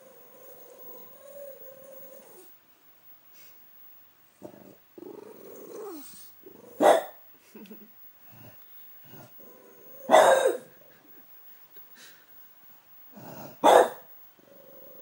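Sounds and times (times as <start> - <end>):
dog whining and grumbling: 0.0 - 2.5, 4.5 - 6.8
dog barking: 6.8 - 7.2, 10.1 - 10.7, 13.6 - 14.1.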